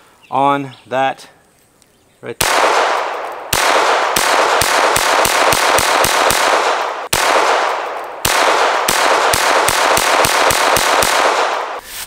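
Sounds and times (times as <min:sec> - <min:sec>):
pistol shots echoing: 0:02.4 - 0:11.8.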